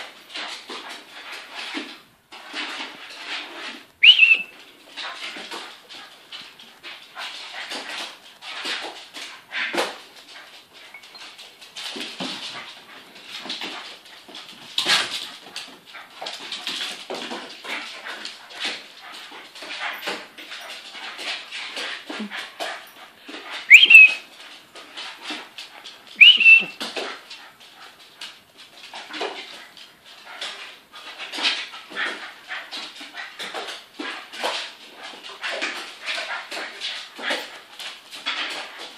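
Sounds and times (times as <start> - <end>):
dog whimpering: 4.0 - 4.5, 23.7 - 24.2, 26.2 - 26.8
dog high-pitched whine: 4.0 - 4.6, 23.7 - 24.2, 26.2 - 26.8.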